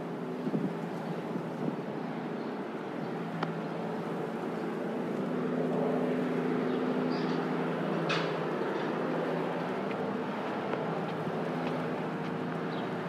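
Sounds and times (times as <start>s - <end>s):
road traffic: 0.0s - 13.0s.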